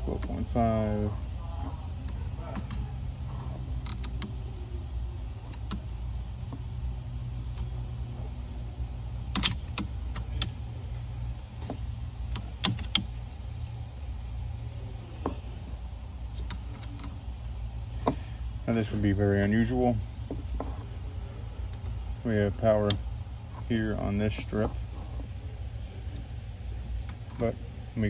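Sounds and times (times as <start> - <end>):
low steady hum: 0.0 - 28.0
metal probe clicking on terminals: 3.7 - 4.4, 5.3 - 6.8, 9.1 - 10.6, 11.6 - 13.8, 16.3 - 17.2, 21.6 - 23.2.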